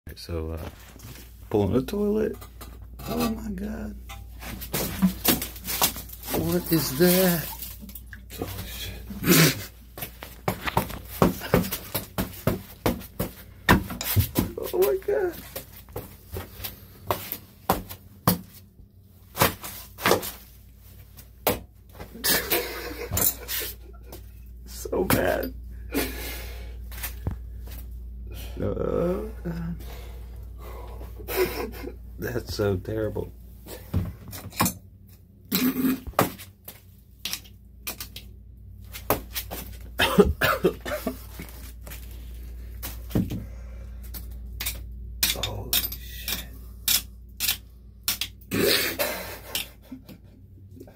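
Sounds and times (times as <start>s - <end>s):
man coughing: 9.1s - 9.8s, 40.0s - 41.2s.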